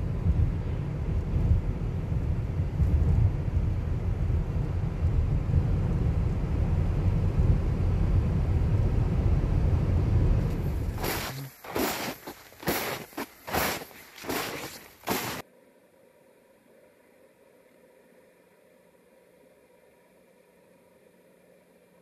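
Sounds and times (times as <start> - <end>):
car road and engine rumble: 0.0 - 15.4
sharp crackling noises: 10.5 - 15.4.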